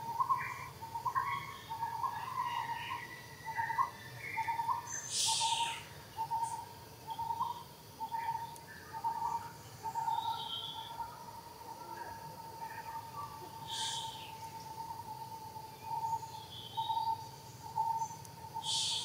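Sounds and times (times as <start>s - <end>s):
bird hooting: 13.6s - 14.4s, 17.8s - 19.0s.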